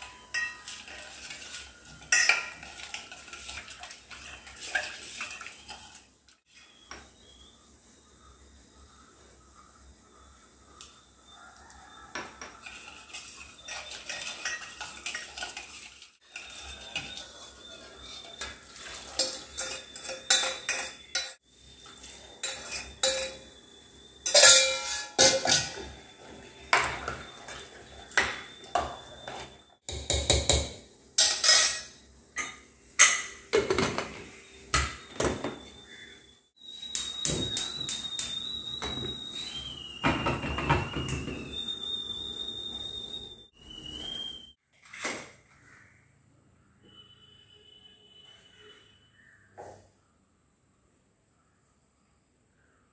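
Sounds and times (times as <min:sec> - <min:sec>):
pots and lids clattering: 0:00.0 - 0:06.2, 0:12.1 - 0:23.6, 0:24.2 - 0:35.7, 0:36.8 - 0:41.7
spoon stirring in steel pan: 0:00.0 - 0:07.0, 0:12.4 - 0:23.6, 0:24.2 - 0:30.1.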